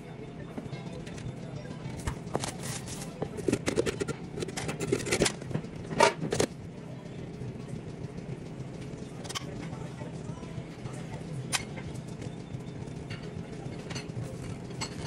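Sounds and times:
steady low hum: 0:00.0 - 0:15.0
utensils clattering: 0:01.9 - 0:06.5, 0:13.1 - 0:15.0.

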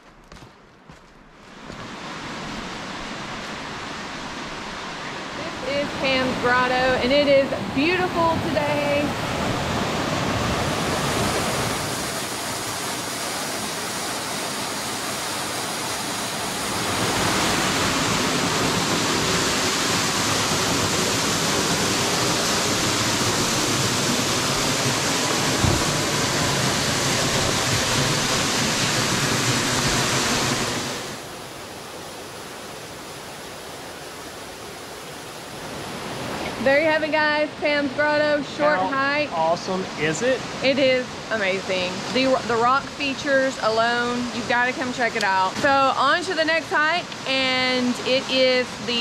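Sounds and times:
waterfall rushing: 0:01.6 - 0:49.0
brief low bump: 0:25.6 - 0:26.0.

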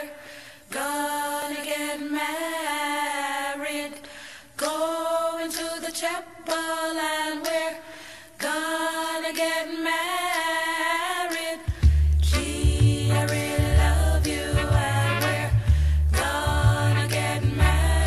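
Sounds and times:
vocal group singing in harmony: 0:00.0 - 0:18.0
singers breathing: 0:00.1 - 0:00.7, 0:04.0 - 0:04.6, 0:07.8 - 0:08.4, 0:11.6 - 0:12.2, 0:15.6 - 0:16.1.

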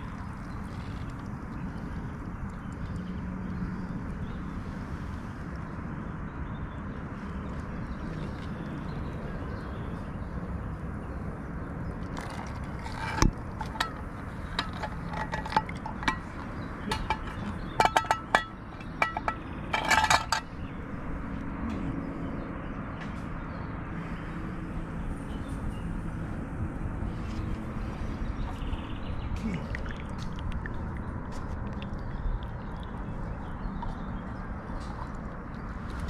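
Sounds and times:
metal cookware clinking: 0:13.6 - 0:20.5.

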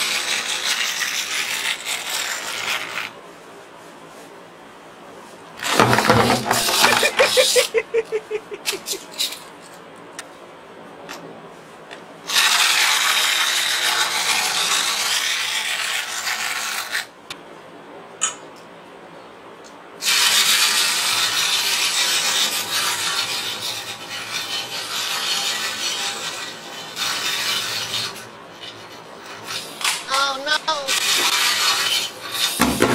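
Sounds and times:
toy mechanism whirring: 0:00.0 - 0:03.2, 0:05.6 - 0:09.5, 0:12.3 - 0:17.1, 0:20.0 - 0:32.7.

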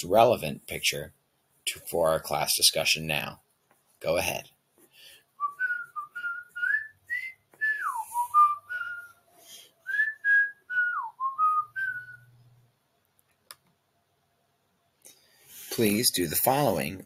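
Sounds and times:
person whistling a tune: 0:05.4 - 0:09.2, 0:09.8 - 0:12.4.

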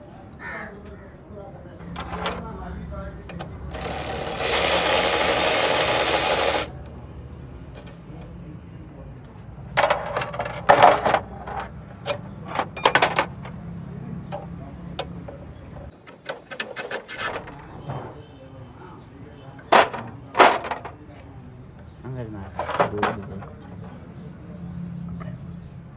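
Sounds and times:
cordless electric ratchet running: 0:03.7 - 0:06.8
metal tools clinking: 0:09.8 - 0:13.6.

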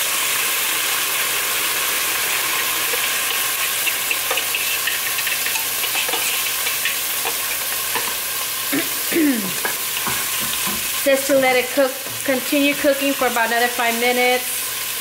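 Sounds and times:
chicken sizzling in a pot: 0:00.0 - 0:15.0
whisk scraping a bowl: 0:03.6 - 0:08.2.

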